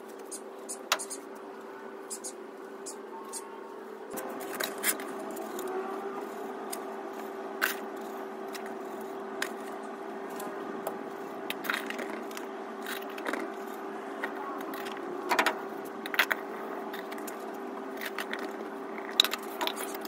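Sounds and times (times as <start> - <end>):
steady hum: 0.0 - 20.0
sharp scrapes and clicks: 4.1 - 20.0.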